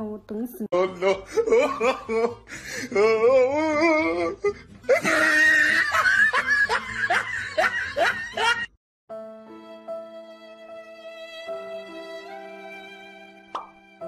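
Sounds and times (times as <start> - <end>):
person laughing hard: 0.8 - 8.7
soft string music: 9.1 - 14.0.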